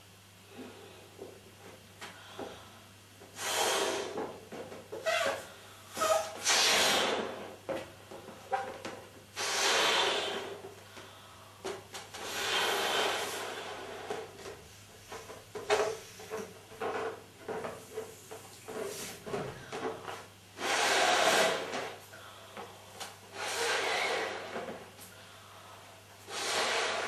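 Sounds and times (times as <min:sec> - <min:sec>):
woman blowing up balloon: 0:03.4 - 0:04.3, 0:05.0 - 0:07.6, 0:08.5 - 0:10.6, 0:12.1 - 0:14.2, 0:20.6 - 0:22.0, 0:23.3 - 0:24.8, 0:26.2 - 0:27.0
hands squeaking on balloon rubber: 0:04.9 - 0:07.6, 0:08.4 - 0:10.6, 0:20.6 - 0:22.0, 0:23.3 - 0:24.8, 0:26.3 - 0:27.0.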